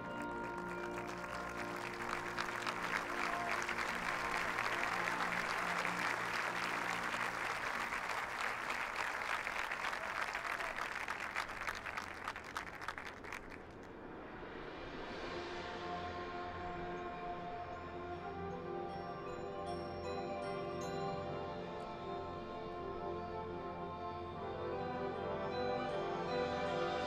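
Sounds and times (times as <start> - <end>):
brass holding low chords: 0.0 - 9.9, 15.2 - 27.0
stadium crowd applauding and cheering: 0.0 - 13.9.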